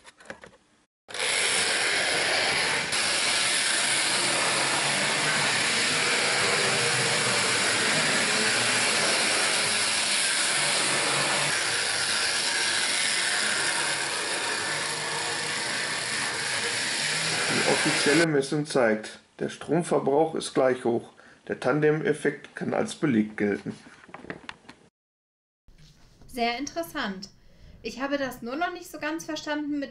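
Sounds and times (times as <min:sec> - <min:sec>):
model locomotive whirring and rattling: 0:01.1 - 0:18.2.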